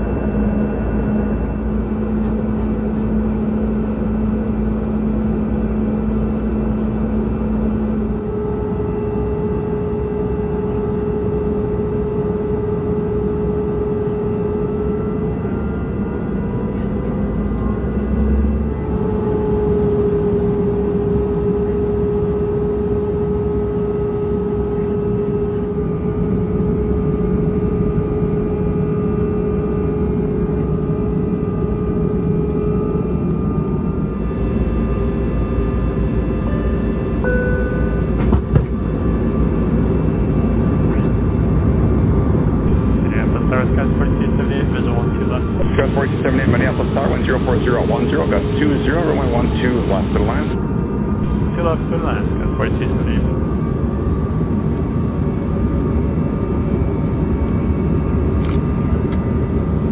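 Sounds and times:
jet engine hum: 0:00.0 - 0:59.9.

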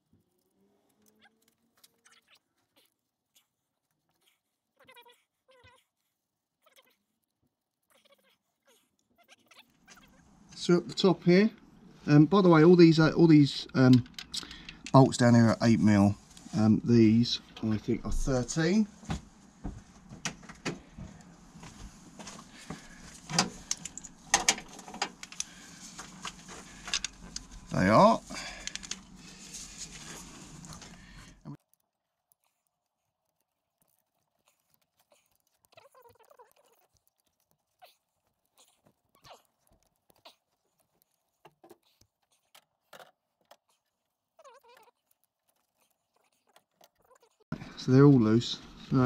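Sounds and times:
spanner clicks and metal taps: 0:23.3 - 0:25.5.

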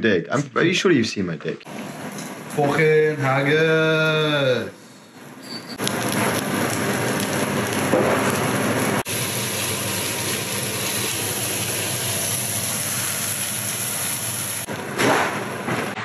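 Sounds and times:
steady hiss: 0:09.0 - 0:14.7.

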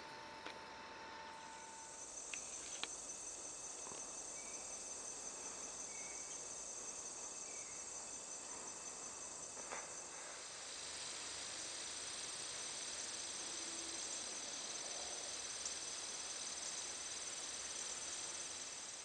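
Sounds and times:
insects chorus: 0:00.0 - 0:19.0.

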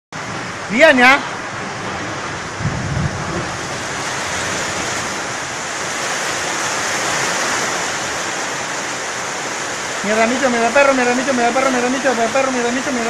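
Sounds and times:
strong wind on microphone: 0:00.2 - 0:10.1.

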